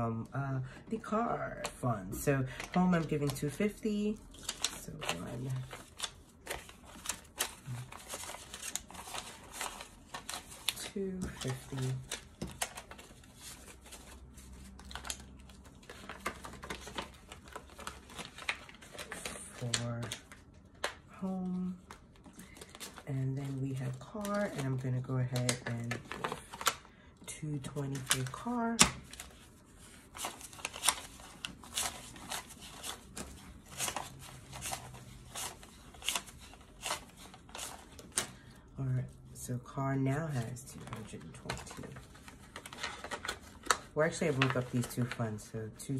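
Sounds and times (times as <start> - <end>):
paper banknotes rustling: 1.0 - 26.9, 27.6 - 39.5, 40.3 - 45.9.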